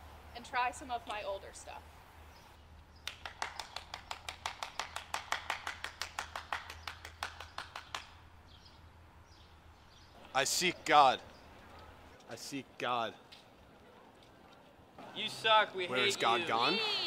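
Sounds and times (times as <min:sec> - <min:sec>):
person clapping hands: 0:03.0 - 0:08.2.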